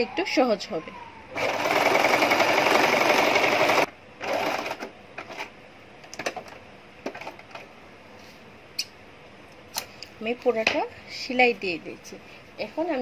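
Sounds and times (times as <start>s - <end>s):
sewing machine stitching: 1.4s - 4.9s.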